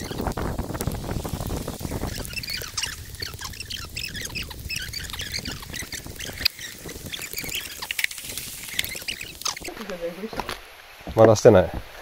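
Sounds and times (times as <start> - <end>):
small animals chirping: 0.0 - 10.1.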